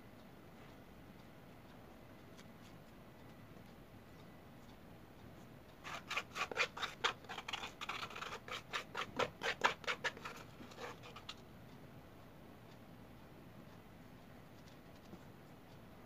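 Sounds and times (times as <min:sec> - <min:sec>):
plastic spoon scraping plastic bowl: 0:05.9 - 0:11.3.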